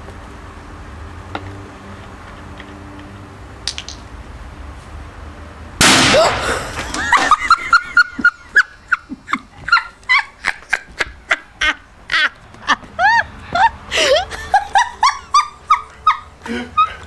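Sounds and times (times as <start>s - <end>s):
bottle rocket explosion: 5.8s - 6.6s.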